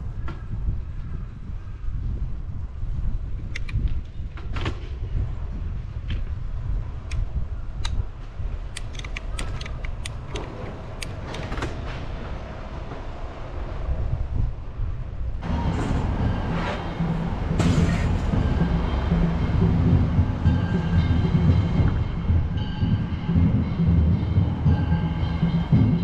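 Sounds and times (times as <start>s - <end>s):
low road rumble: 0.0s - 26.0s
wind buffeting microphone: 0.0s - 26.0s
bicycle clicks and rattles: 3.5s - 4.7s, 8.7s - 11.8s.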